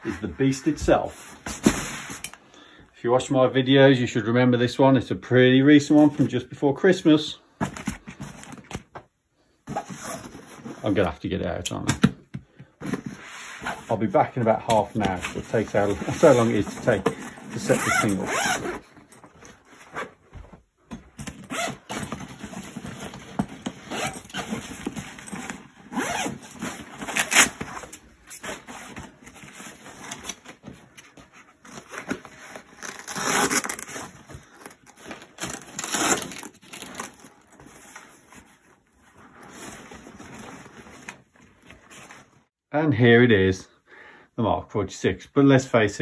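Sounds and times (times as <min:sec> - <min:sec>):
zipper pulled open: 0:17.7 - 0:18.8, 0:23.8 - 0:29.0
fabric rustling and scraping: 0:22.4 - 0:42.6.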